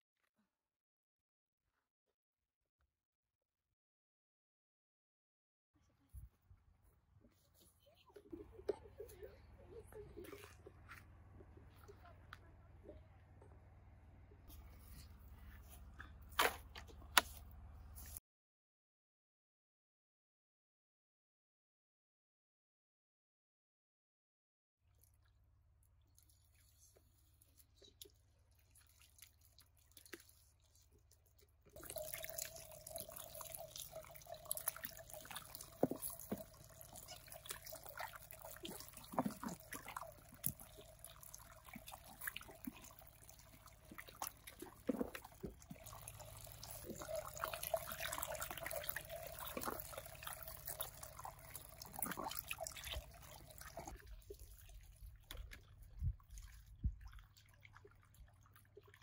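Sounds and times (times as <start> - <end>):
water running and splashing: 31.7 - 59.0.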